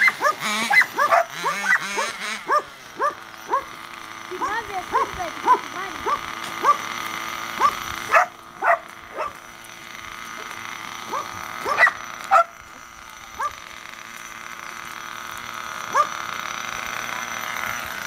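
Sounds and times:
dog yipping: 0:00.0 - 0:03.7, 0:04.4 - 0:06.8, 0:07.6 - 0:09.4, 0:11.1 - 0:12.5, 0:15.9 - 0:16.1
steady background hum: 0:00.0 - 0:18.0.

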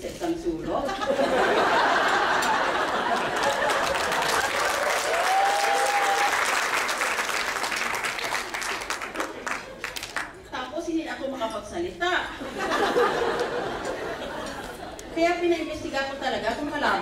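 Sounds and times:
audience clapping: 0:02.2 - 0:10.4.

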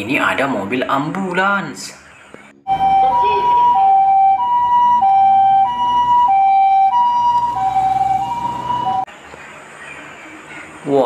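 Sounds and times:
two-tone ambulance siren: 0:02.6 - 0:09.1.

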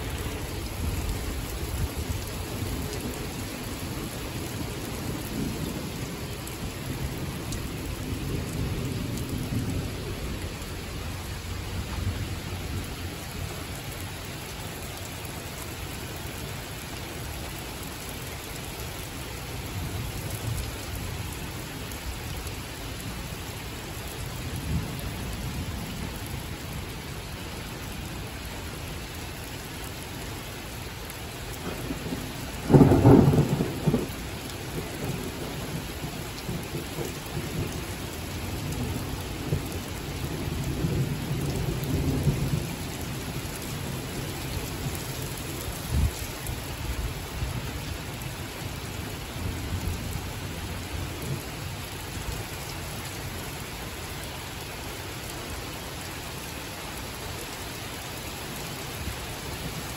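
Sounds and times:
heavy rain falling: 0:00.0 - 0:59.9
thunder rolling: 0:31.6 - 0:34.1.

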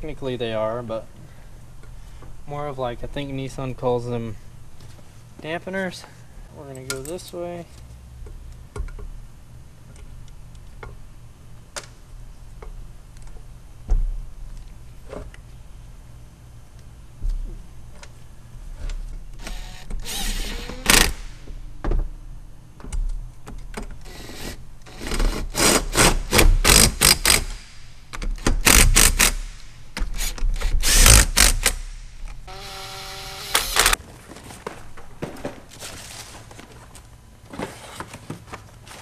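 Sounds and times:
cordless power driver bursts: 0:30.2 - 0:34.0
motor whine: 0:32.5 - 0:34.0.

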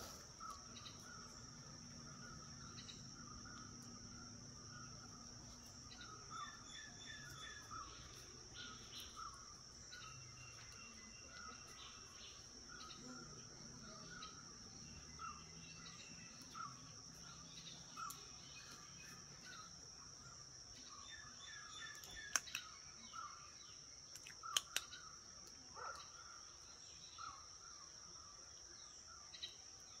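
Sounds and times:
sharp clicks: 0:21.9 - 0:22.7, 0:24.1 - 0:25.6.

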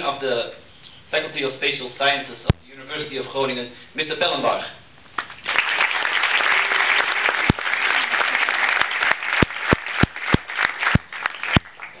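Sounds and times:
audience applauding: 0:05.2 - 0:12.0.

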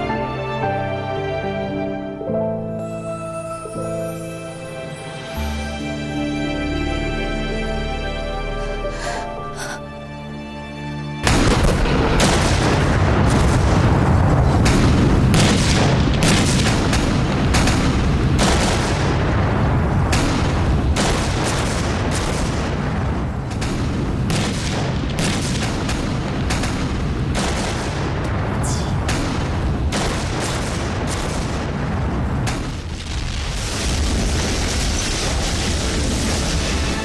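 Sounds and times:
quiet music: 0:00.0 - 0:13.2
deep rumble of explosions: 0:11.2 - 0:37.0
sharp blasts and shots: 0:11.2 - 0:37.0.

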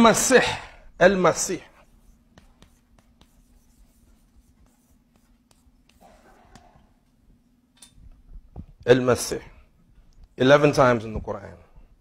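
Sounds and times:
chalk scratching on chalkboard: 0:01.5 - 0:06.9.

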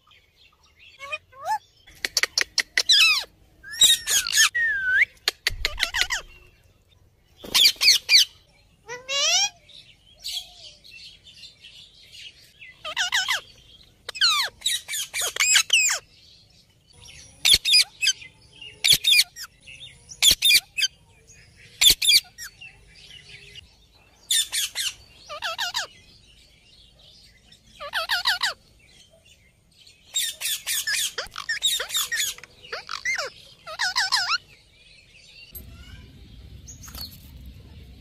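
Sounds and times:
parrots squawking: 0:01.0 - 0:06.4, 0:08.9 - 0:09.6, 0:12.8 - 0:13.5, 0:14.1 - 0:16.0, 0:24.3 - 0:26.0, 0:27.8 - 0:28.6, 0:30.1 - 0:34.4.

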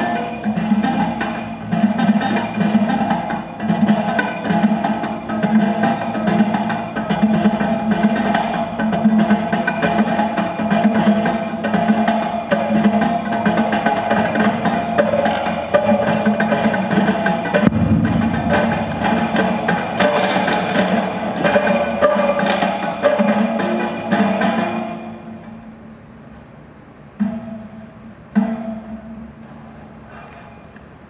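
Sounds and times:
low thud: 0:17.6 - 0:20.9
low drone: 0:17.6 - 0:21.6.

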